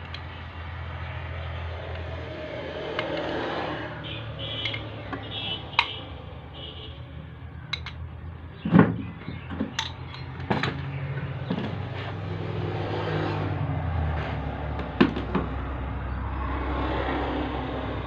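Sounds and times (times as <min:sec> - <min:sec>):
metal clicks and clinks: 0:07.7 - 0:08.0, 0:09.8 - 0:10.8
parts set down on wooden bench: 0:08.6 - 0:11.8.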